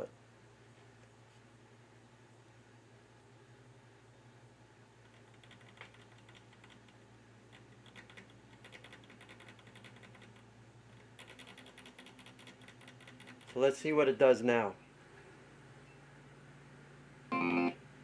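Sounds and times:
knob clicking rapidly: 7.6s - 10.4s, 11.2s - 13.6s.

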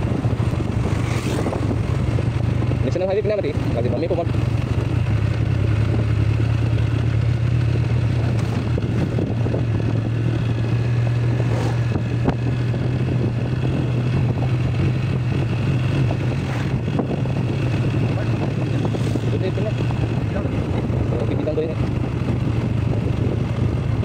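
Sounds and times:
motorcycle engine running: 0.0s - 24.0s
road noise: 0.0s - 24.0s.

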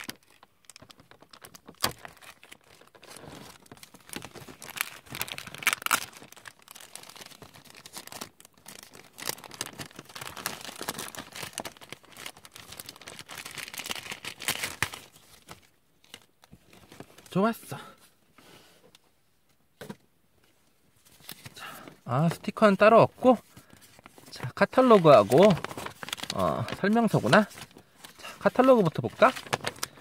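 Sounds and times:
plastic bag crinkling: 0.0s - 17.4s, 23.5s - 30.0s.

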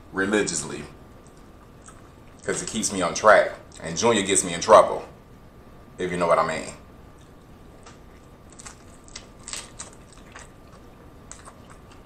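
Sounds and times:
person chewing crunchy taco: 1.2s - 2.5s, 7.2s - 12.0s.

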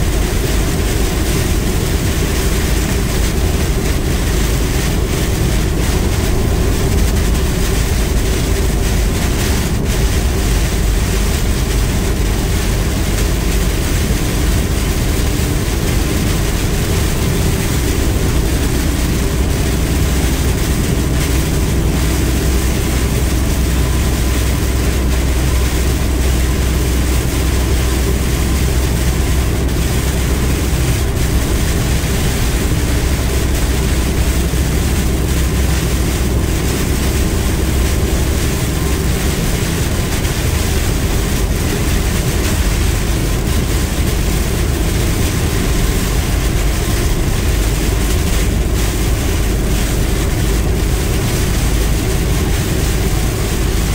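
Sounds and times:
engine and tyres rumbling on wet road: 0.0s - 53.9s
rain and road spray hiss: 0.0s - 53.9s.

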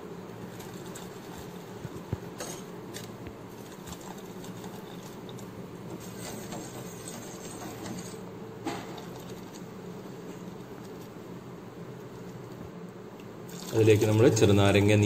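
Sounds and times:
liquid simmering in a pot: 0.1s - 11.3s, 13.1s - 14.4s
ladle stirring and pouring liquid: 2.4s - 9.6s.

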